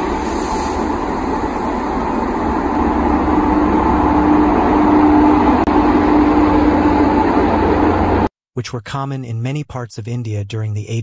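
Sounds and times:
electric locomotive passing: 0.0 - 8.3.

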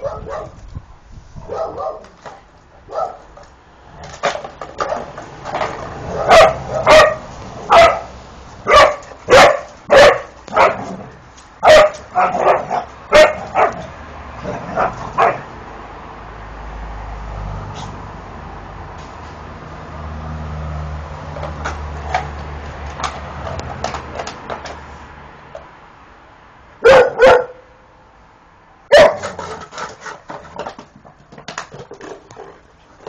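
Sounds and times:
dog barking: 0.0 - 0.6, 1.4 - 2.1, 2.9 - 3.3, 6.1 - 10.9, 11.6 - 15.5, 26.8 - 27.7, 28.9 - 29.5.

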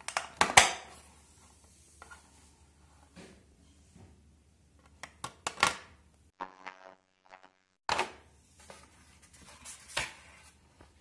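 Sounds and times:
faint steady buzz: 6.2 - 7.9.

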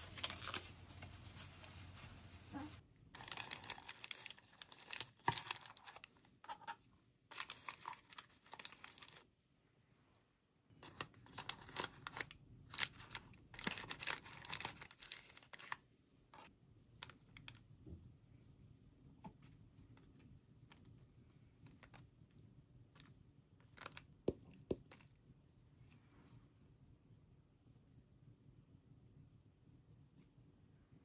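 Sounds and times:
paper rustling: 0.0 - 9.2.

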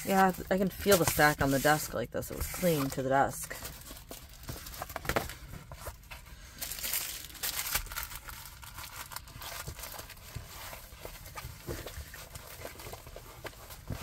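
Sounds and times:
canvas rustling and crinkling: 0.0 - 14.0.

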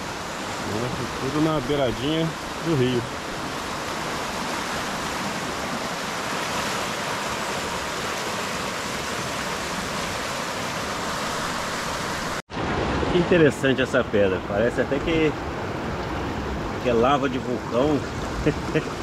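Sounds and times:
river rapids rushing over rocks: 0.0 - 12.7.

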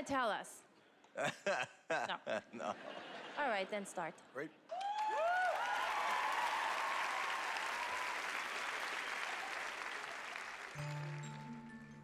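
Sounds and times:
audience applauding and cheering: 4.7 - 12.0
music with low sustained notes: 10.8 - 12.0.

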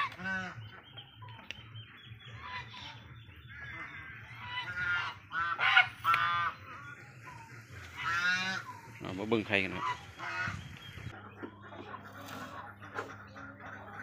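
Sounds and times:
loud nasal duck calls: 0.0 - 0.7, 2.5 - 7.0, 7.9 - 8.7, 9.7 - 10.8
ducks quacking: 0.0 - 14.0.

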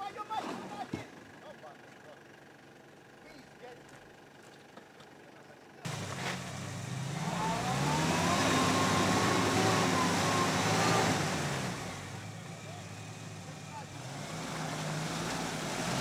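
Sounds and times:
engine revving hard: 5.9 - 16.0.

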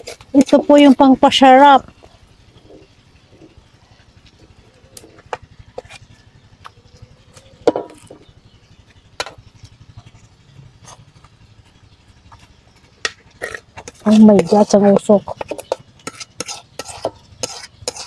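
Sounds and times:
metal spoon scraping a wok: 0.0 - 1.0, 5.0 - 6.3, 13.0 - 18.0.

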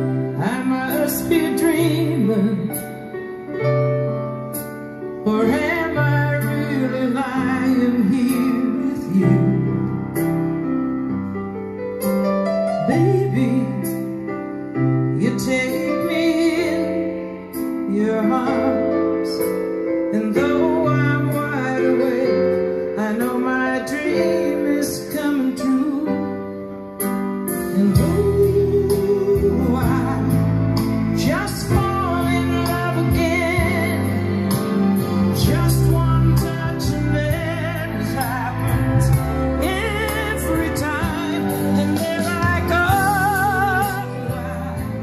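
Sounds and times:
piano and keyboard: 0.0 - 45.0
woman singing: 0.4 - 2.8, 5.2 - 9.6, 17.9 - 19.6, 27.7 - 30.4.

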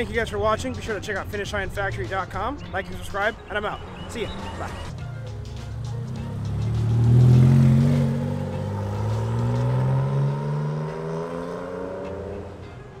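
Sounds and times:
car engine accelerating: 3.4 - 12.7.

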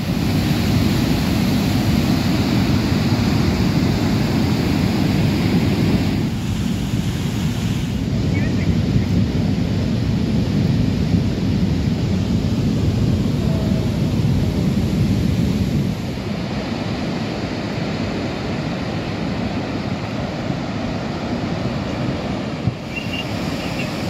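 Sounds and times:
river in flood rushing: 0.0 - 24.0.

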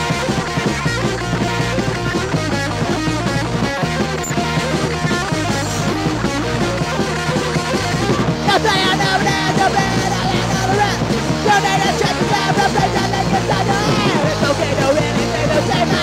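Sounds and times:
punk band playing: 0.0 - 16.0
shouted vocals: 8.0 - 16.0.

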